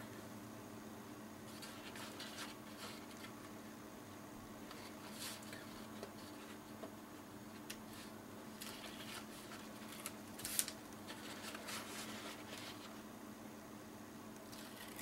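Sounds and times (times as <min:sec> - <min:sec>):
paper rustling and crinkling: 0:01.5 - 0:03.4, 0:04.7 - 0:06.6, 0:07.9 - 0:13.0.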